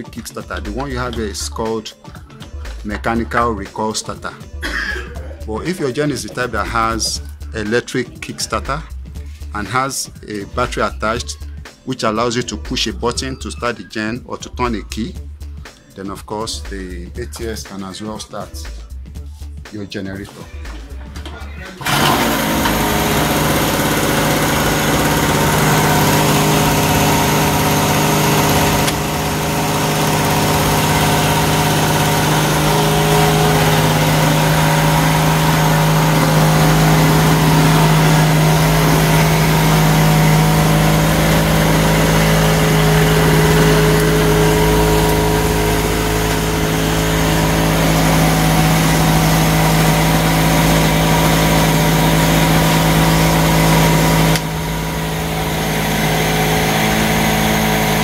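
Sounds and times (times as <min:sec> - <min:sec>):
generator engine humming: 0:02.2 - 0:09.0, 0:20.6 - 0:58.0.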